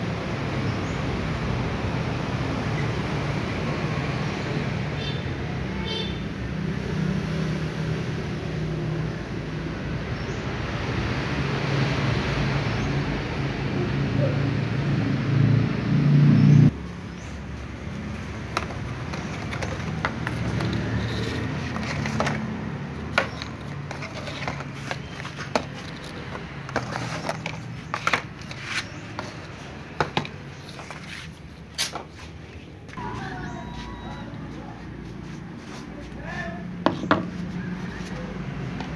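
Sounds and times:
plastic trays knocking on wooden table: 0:29.9 - 0:30.4.

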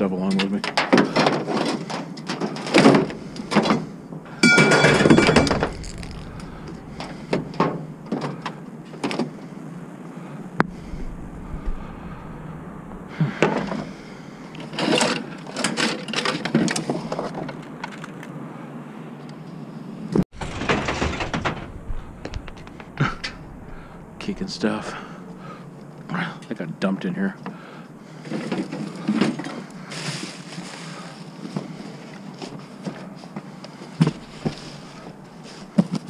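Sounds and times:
junk clunking in a dumpster: 0:00.8 - 0:09.3, 0:20.2 - 0:25.6
loud ringing clatter: 0:04.3 - 0:08.3, 0:20.4 - 0:25.5.

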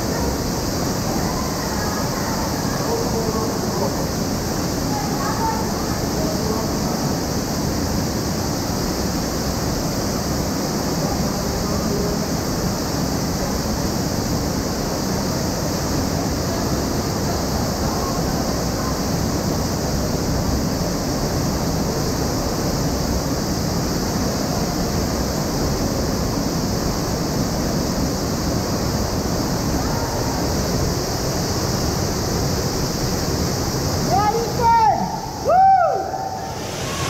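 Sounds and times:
waterfall pouring into pool: 0:35.8 - 0:37.0.

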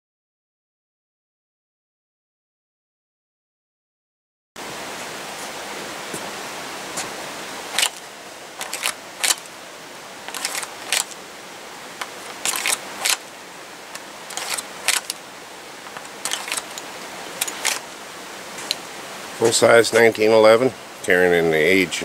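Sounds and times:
steady hiss: 0:04.6 - 0:22.0
pistol clicking in holster: 0:07.8 - 0:08.0, 0:08.6 - 0:09.5, 0:10.3 - 0:11.2, 0:12.0 - 0:13.3, 0:14.0 - 0:15.2, 0:15.9 - 0:17.8.

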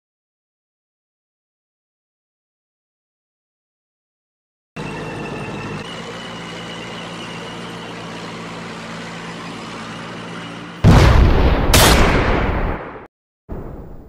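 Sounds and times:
loud battle blasts: 0:10.8 - 0:14.0.

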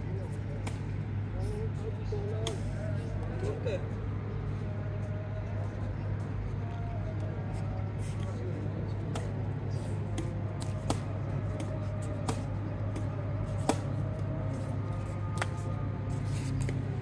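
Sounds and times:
rackets hitting shuttlecock: 0:10.0 - 0:14.0, 0:15.4 - 0:15.6.

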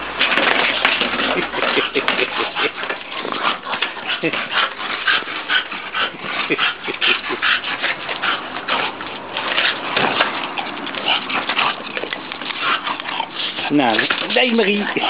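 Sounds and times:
dog huffing rapidly: 0:00.3 - 0:15.0.

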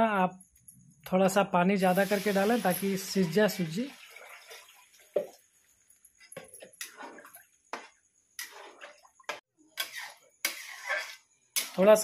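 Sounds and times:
spatula scraping steel pan: 0:09.8 - 0:12.0.

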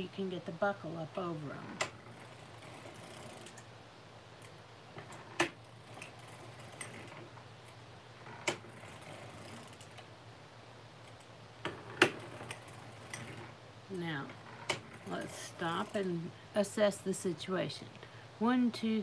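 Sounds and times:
knitting machine metal clicks: 0:01.7 - 0:03.7, 0:04.4 - 0:10.1, 0:11.0 - 0:13.6.

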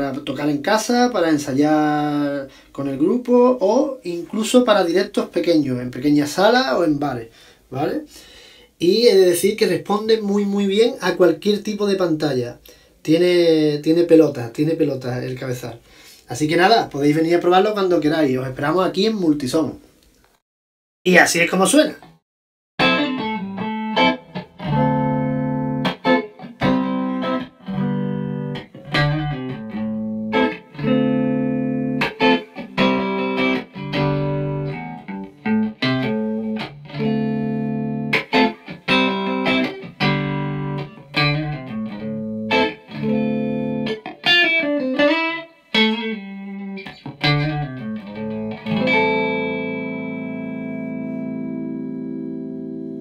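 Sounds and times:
electric guitar chords: 0:22.8 - 0:53.0.

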